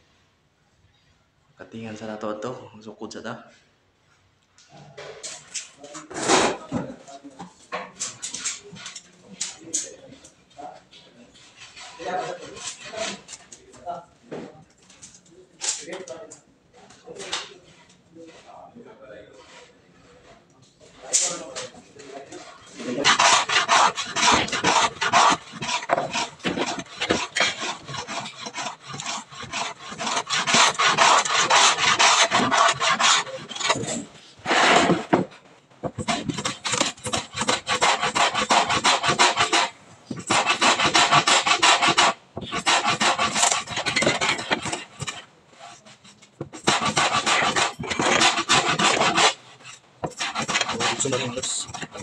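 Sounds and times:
hand tool rasping board edge: 11.5s - 13.3s, 22.8s - 45.2s, 46.4s - 52.0s.

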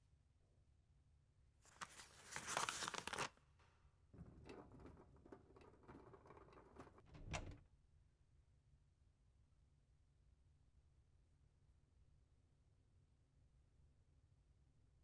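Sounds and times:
book pages rustling: 1.7s - 3.4s.

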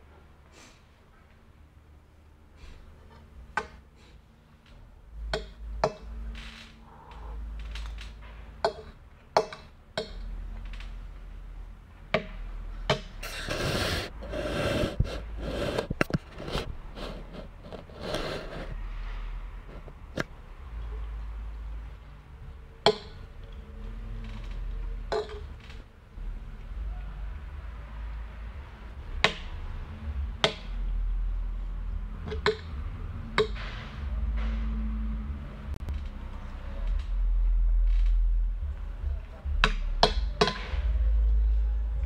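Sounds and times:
rustling scraping noise: 13.2s - 20.3s.

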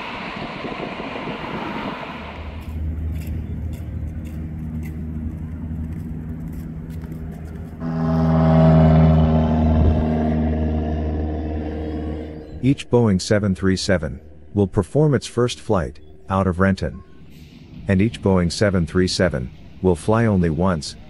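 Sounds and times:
aircraft engine rushing noise: 0.0s - 14.6s
low hum with clicks: 2.4s - 8.3s.

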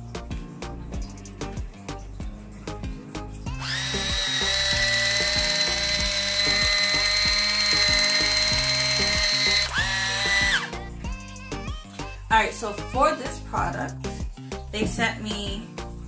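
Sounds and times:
background music with steady beat: 0.0s - 16.0s
electric can opener whining: 3.5s - 10.8s.

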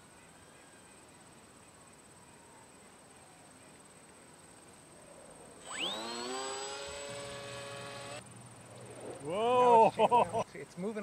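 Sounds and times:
electric motor and propeller whine: 5.6s - 9.3s.

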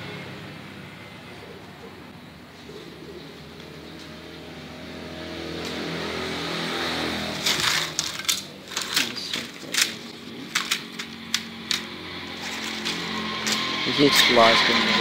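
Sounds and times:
motor vehicle passing: 0.0s - 15.0s
bamboo strips clattering on tiles: 7.3s - 13.8s.

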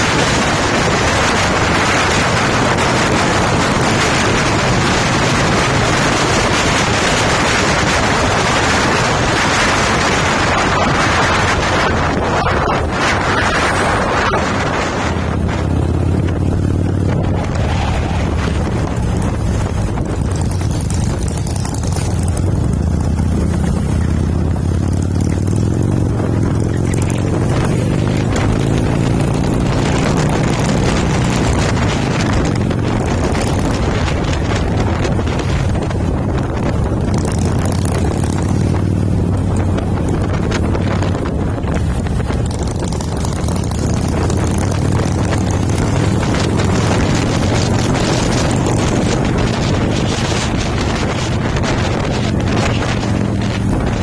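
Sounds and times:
motorcycle engine running: 0.0s - 54.0s
wind buffeting microphone: 0.0s - 54.0s.

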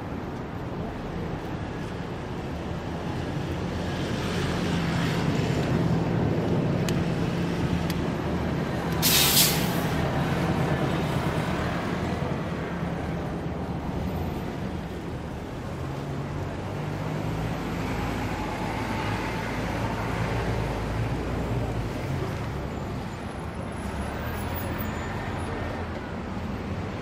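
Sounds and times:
traffic engines running: 0.0s - 27.0s
air brakes hissing: 9.0s - 10.0s.

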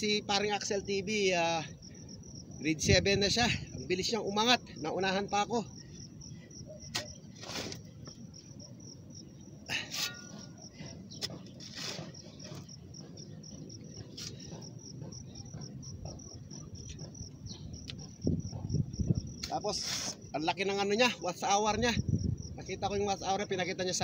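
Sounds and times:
crickets chirping: 0.0s - 24.0s
hoe digging into soil: 6.8s - 8.0s, 9.7s - 12.8s, 19.4s - 20.3s.

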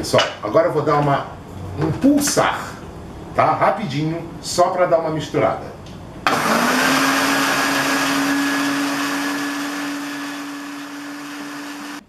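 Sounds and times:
blender motor running: 6.3s - 12.0s.

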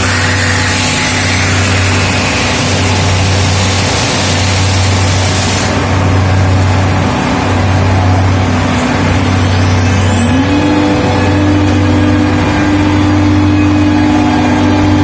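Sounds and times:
router spindle cutting wood: 0.0s - 3.2s
low machine hum: 0.0s - 15.0s.

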